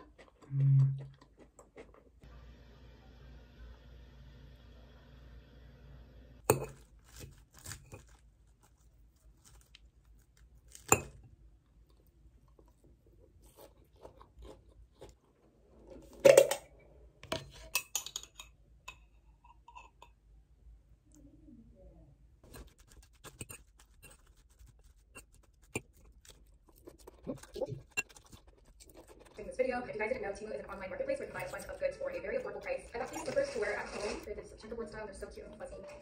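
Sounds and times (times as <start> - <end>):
chewing crunchy salad: 0.0 - 2.2, 11.8 - 15.4, 22.5 - 29.4.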